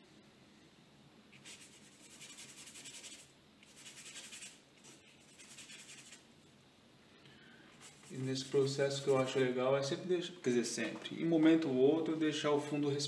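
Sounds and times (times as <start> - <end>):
paintbrush scrubbing on paper: 1.3 - 6.3, 7.8 - 9.4.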